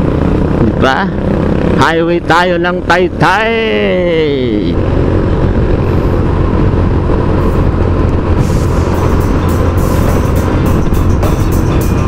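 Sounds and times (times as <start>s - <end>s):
motorcycle engine and road rumble: 0.0s - 12.0s
music with a beat: 8.4s - 12.0s.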